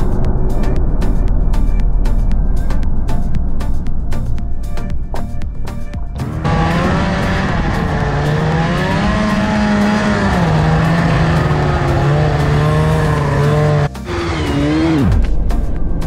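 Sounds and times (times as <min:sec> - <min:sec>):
snowmobile engine running: 0:06.2 - 0:15.3.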